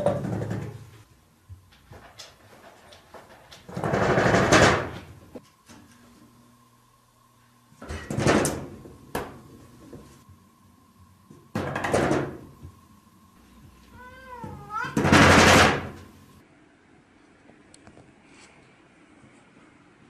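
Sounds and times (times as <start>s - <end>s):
cat meowing: 13.9s - 15.2s.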